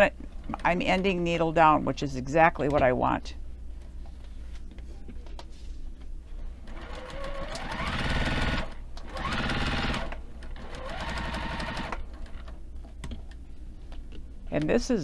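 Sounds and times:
sewing machine motor whine: 0:06.7 - 0:12.4.

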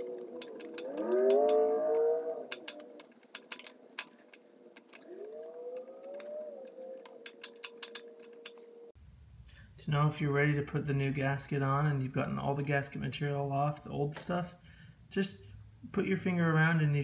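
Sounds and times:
gasket scraping and clicking: 0:00.0 - 0:08.9.

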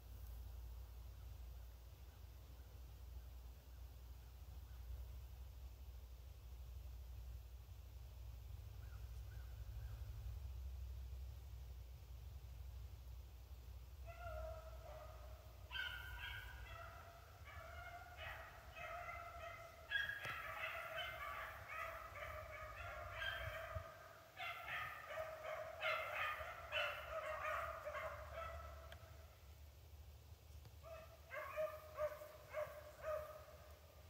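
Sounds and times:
pack of dogs baying: 0:14.1 - 0:29.1, 0:30.9 - 0:33.8.

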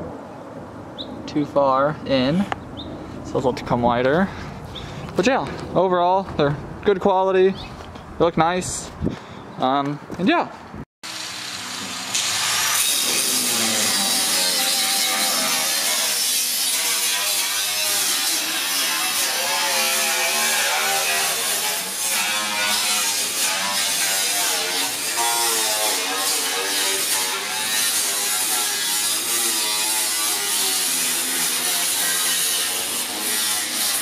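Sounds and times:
angle grinder cutting metal: 0:11.0 - 0:34.0.

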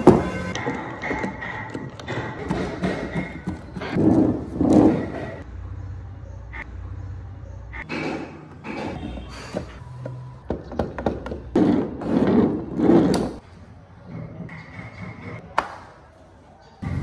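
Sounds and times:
wooden parts rubbing and knocking: 0:00.0 - 0:05.5, 0:07.9 - 0:15.8.

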